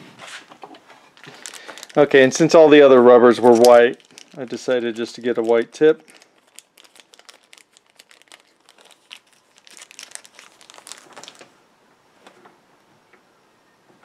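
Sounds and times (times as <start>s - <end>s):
plastic bag crinkling: 1.2s - 11.6s.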